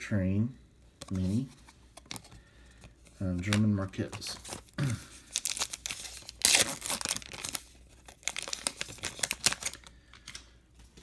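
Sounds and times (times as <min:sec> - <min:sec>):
wrapper tearing and crinkling: 0:04.2 - 0:10.4.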